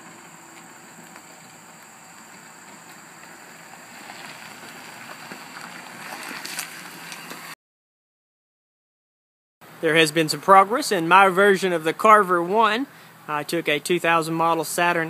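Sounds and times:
tyres crunching on gravel: 0:00.0 - 0:07.6.

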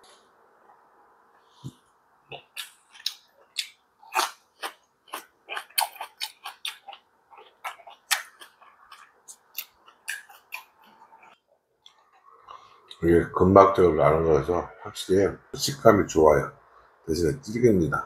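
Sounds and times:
faint steady hum: 0:00.0 - 0:18.0
chewing mouth clicks and smacks: 0:02.3 - 0:12.6.

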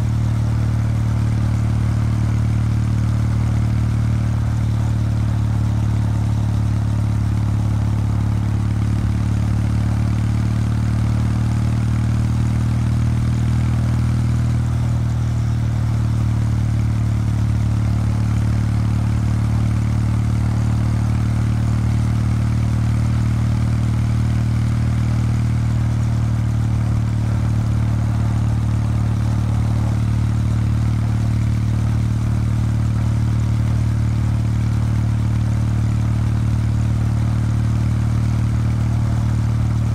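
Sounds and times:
motorcycle engine exhaust note: 0:11.6 - 0:39.9.

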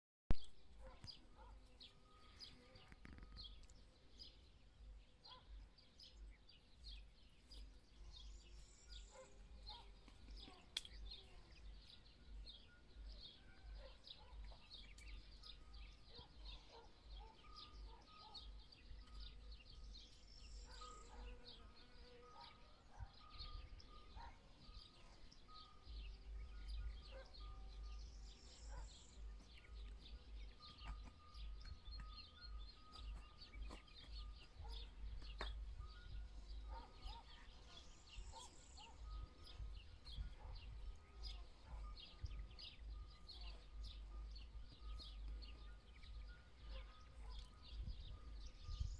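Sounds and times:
small birds chirping: 0:00.3 - 0:48.9
wind rumble on microphone: 0:34.5 - 0:48.9.

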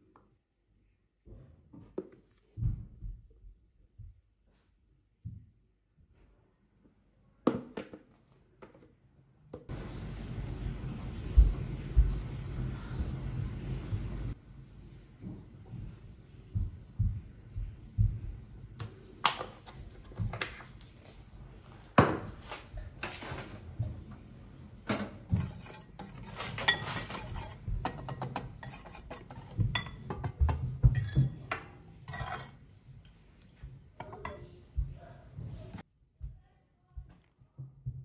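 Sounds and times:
whisk stirring in ceramic bowl: 0:25.3 - 0:32.5.

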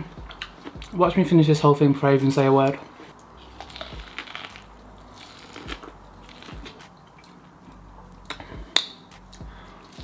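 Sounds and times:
chewing corn crunches: 0:03.4 - 0:08.4.

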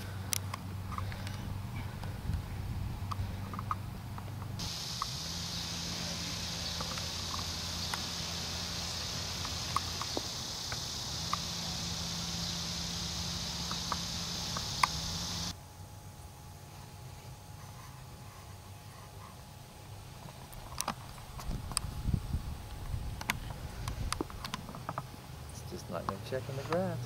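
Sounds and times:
high-pitched insect chorus: 0:04.6 - 0:15.6.

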